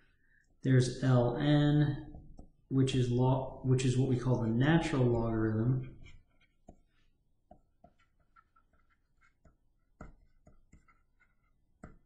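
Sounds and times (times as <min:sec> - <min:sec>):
stylus tapping on tablet: 0:06.0 - 0:12.0.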